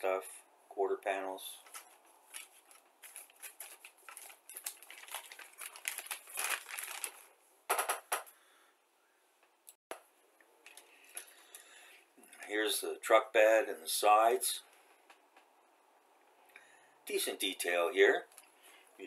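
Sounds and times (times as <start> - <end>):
plastic bag crinkling: 1.6 - 7.4
plastic parts rattling: 1.6 - 8.3.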